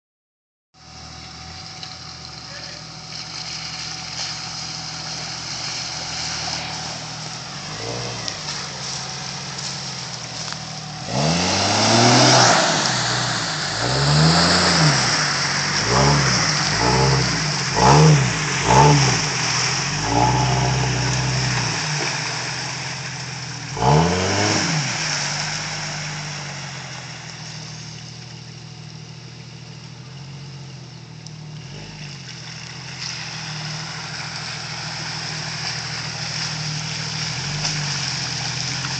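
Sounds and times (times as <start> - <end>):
engine revving hard: 11.0 - 22.9, 23.7 - 26.6.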